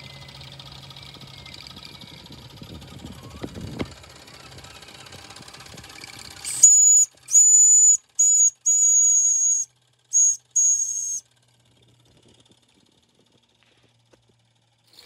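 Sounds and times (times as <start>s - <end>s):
steam whistle toots: 6.5s - 11.2s.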